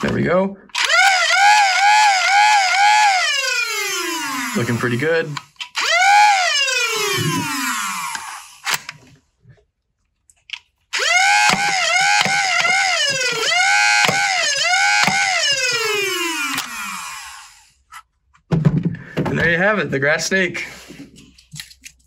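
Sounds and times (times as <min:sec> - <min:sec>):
flywheel motors whining: 0:00.8 - 0:09.0, 0:11.0 - 0:17.8.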